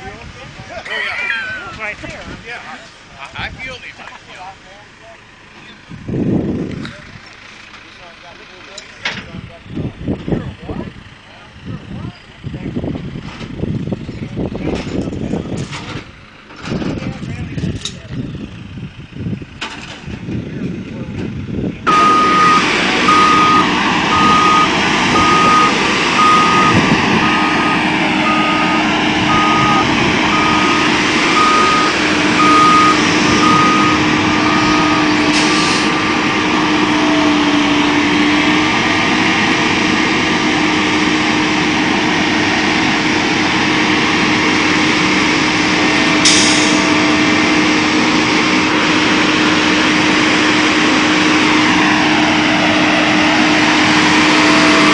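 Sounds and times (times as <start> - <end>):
excavator diesel engine: 0.0 - 54.9
backup alarm beeping: 21.9 - 35.3
air hissing: 35.3 - 36.0.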